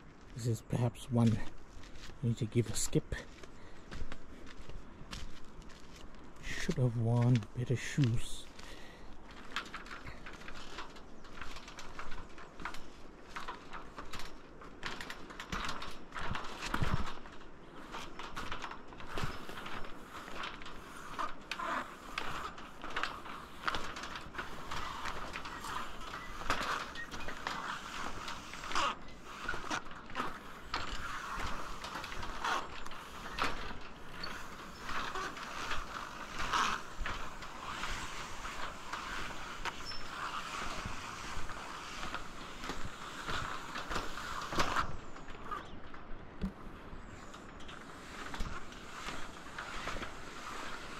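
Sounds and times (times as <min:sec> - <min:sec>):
footsteps on wooden planks: 0:00.0 - 0:50.9
bridge fittings creaking and rattling: 0:00.2 - 0:50.9
footsteps on wooden deck: 0:01.0 - 0:15.3.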